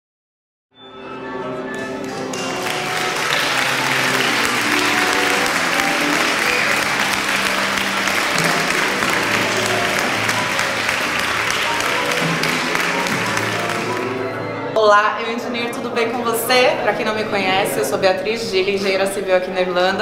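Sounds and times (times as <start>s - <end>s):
background music: 0.8s - 20.0s
crowd applauding: 1.7s - 14.4s.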